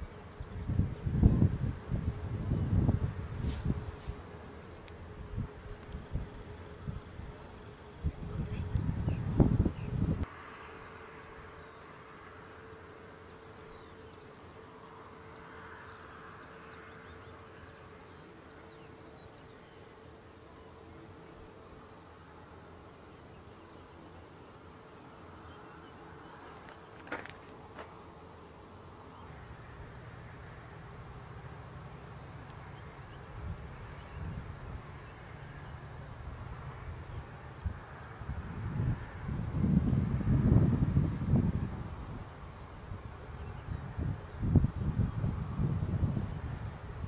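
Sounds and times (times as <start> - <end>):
wind buffeting microphone: 0.0 - 4.2, 8.0 - 10.3, 36.2 - 47.0
steady hum: 0.0 - 47.0.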